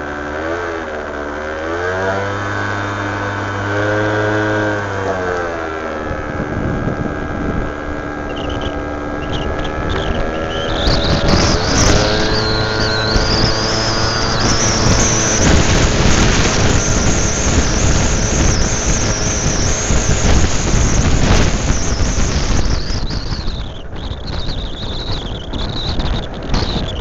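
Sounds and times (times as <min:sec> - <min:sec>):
scooter engine accelerating: 0:00.0 - 0:27.0
wind rush on microphone: 0:02.0 - 0:27.0
high wavering whistle: 0:08.2 - 0:27.0.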